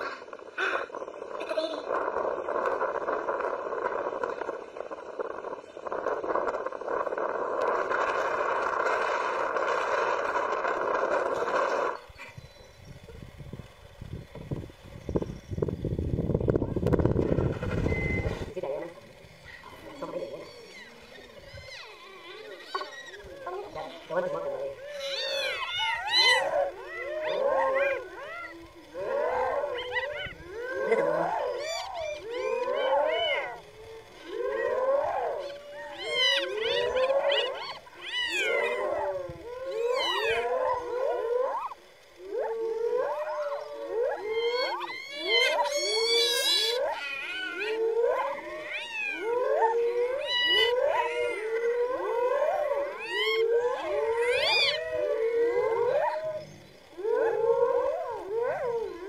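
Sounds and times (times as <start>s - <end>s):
hyenas calling: 17.4s - 59.0s.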